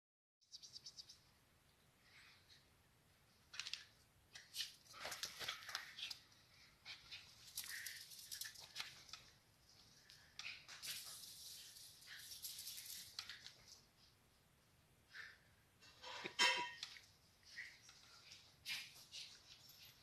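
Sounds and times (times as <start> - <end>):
dog paws scratching: 3.6 - 14.1.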